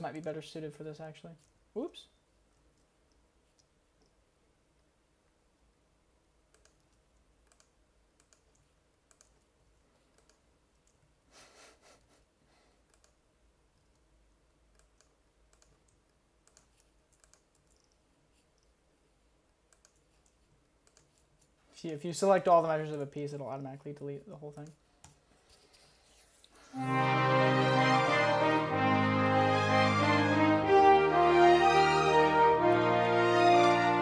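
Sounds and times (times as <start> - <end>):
mouse and keyboard clicks: 6.5 - 9.5, 14.7 - 18.8, 19.7 - 21.6.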